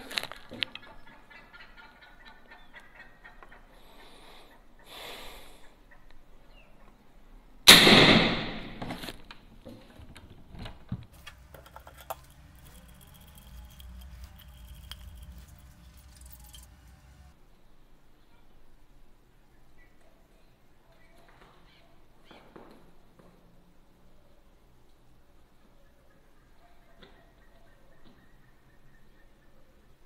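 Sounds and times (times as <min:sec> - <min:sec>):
air rifle firing: 0:07.7 - 0:08.8.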